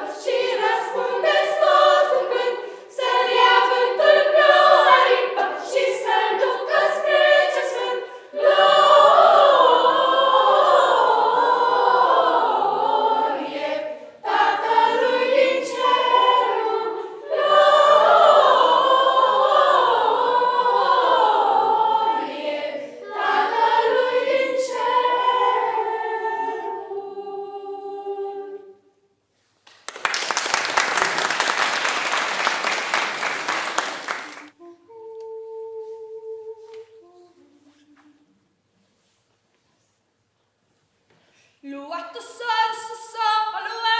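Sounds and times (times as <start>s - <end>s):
children's choir singing a cappella: 0.0s - 29.0s, 32.4s - 43.9s
applause: 29.6s - 34.5s.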